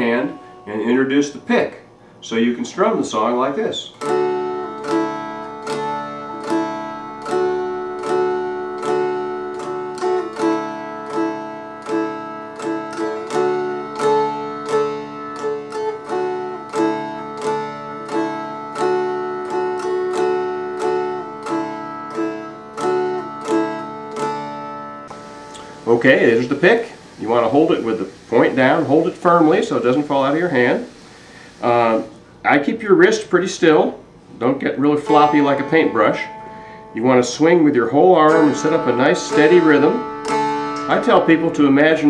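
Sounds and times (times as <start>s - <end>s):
dulcimer strummed: 4.0s - 30.9s, 34.8s - 42.0s.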